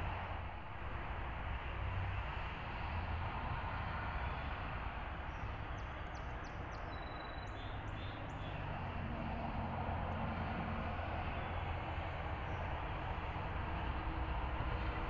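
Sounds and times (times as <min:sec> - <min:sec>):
outdoor background rush: 0:00.0 - 0:15.0
faint high bird chirps: 0:06.8 - 0:08.5.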